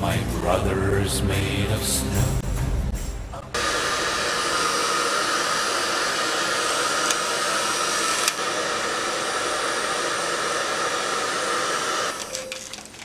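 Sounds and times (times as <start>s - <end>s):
hair dryer blowing: 3.6s - 12.5s.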